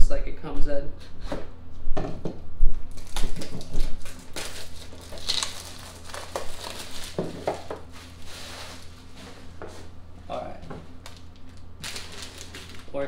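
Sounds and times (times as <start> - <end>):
plastic packaging crinkling: 2.9 - 9.3, 11.0 - 13.0.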